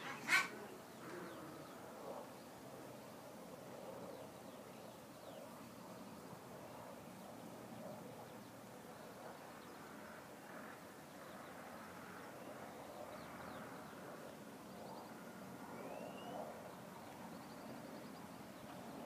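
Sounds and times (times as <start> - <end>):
faint outdoor background noise: 0.0 - 19.0
bird chirps and trills: 15.8 - 16.4.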